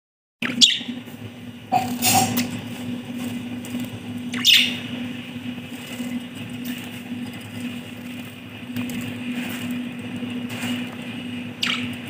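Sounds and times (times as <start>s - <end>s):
budgerigars chirping: 0.4s - 0.9s, 4.3s - 4.9s, 11.6s - 12.0s.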